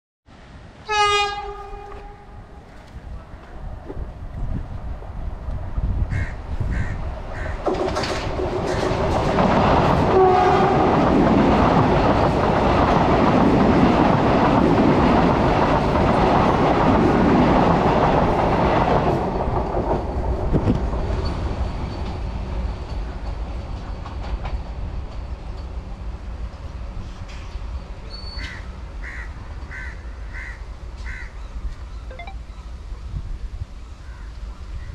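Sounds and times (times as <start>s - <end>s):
train rushing past: 0.4s - 31.4s
train horn: 0.8s - 2.7s, 10.0s - 11.1s.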